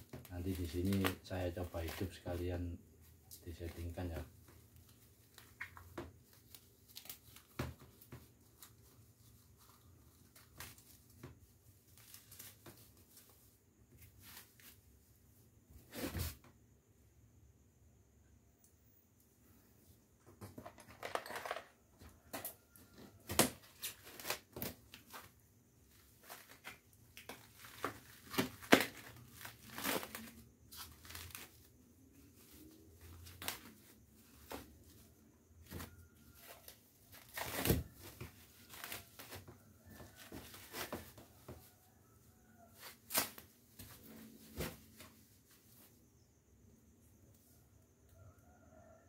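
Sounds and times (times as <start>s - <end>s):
plastic wrap tearing and crumpling: 0.2s - 2.1s, 23.4s - 25.2s, 26.2s - 31.7s, 36.4s - 39.4s.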